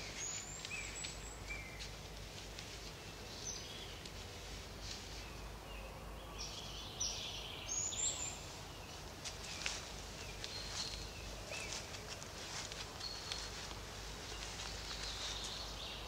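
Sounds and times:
footsteps in dry leaves: 0.0s - 5.4s, 8.4s - 16.0s.

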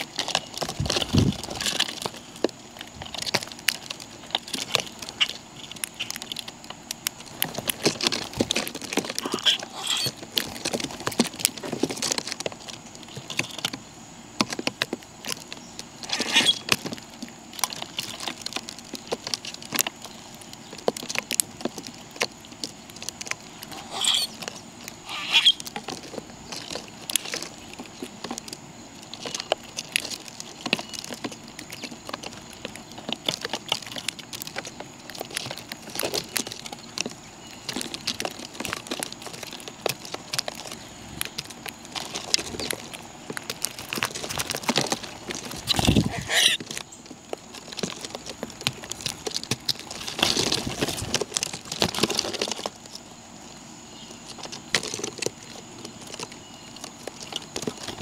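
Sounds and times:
birds pecking at seed: 0.0s - 58.0s
high bird calls: 9.1s - 10.3s, 15.5s - 16.7s, 22.6s - 26.6s, 45.5s - 47.1s.

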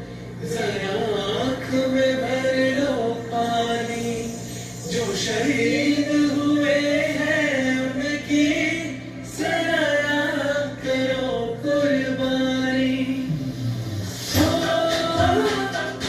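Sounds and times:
voices singing a melody: 0.4s - 16.0s.

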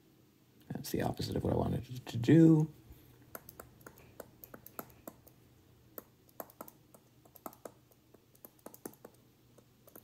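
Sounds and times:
stylus tapping on touchscreen: 3.3s - 10.0s.

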